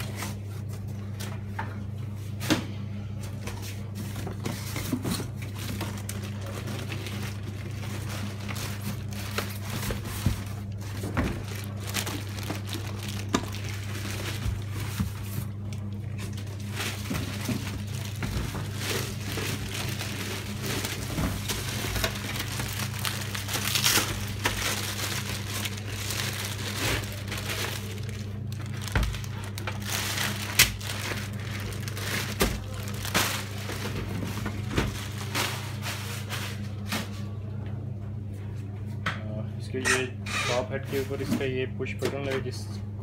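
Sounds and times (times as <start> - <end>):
steady low hum: 0.0 - 43.0
plastic bag crinkling: 5.3 - 36.4.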